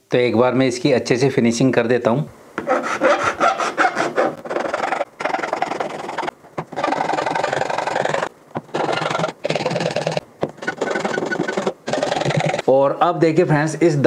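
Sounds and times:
metal file rasping on plastic: 0:02.6 - 0:12.6.

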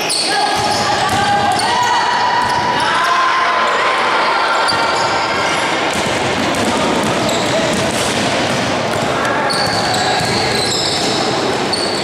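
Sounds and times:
basketball bouncing on wooden court: 0:00.6 - 0:02.7, 0:05.9 - 0:10.9.

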